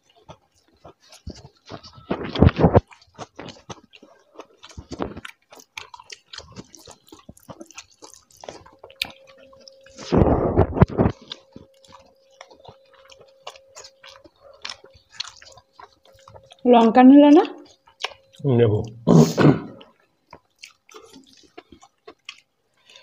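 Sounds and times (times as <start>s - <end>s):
chewing and wet mouth sounds: 0.0s - 19.1s, 19.7s - 23.0s.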